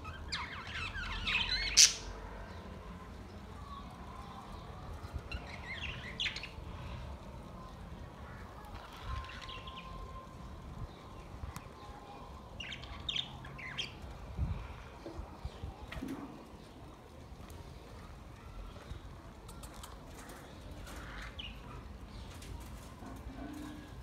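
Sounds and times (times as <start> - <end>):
budgerigars chirping and warbling: 0.0 - 2.2
low rumbling wind noise: 4.1 - 17.7.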